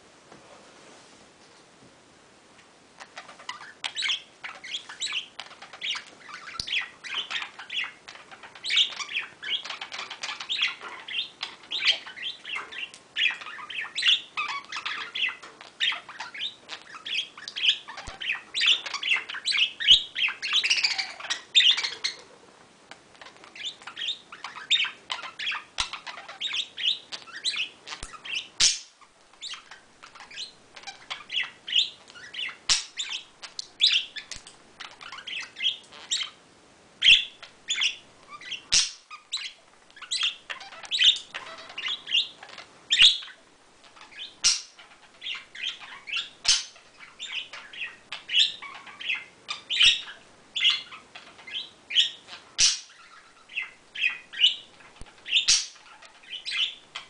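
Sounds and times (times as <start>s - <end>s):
budgerigars chirping and chattering: 3.0s - 36.4s, 37.0s - 57.0s.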